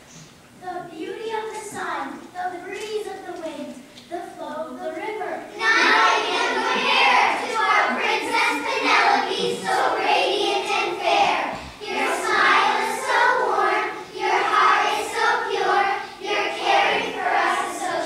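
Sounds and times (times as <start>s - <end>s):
children singing in unison: 5.6s - 18.0s.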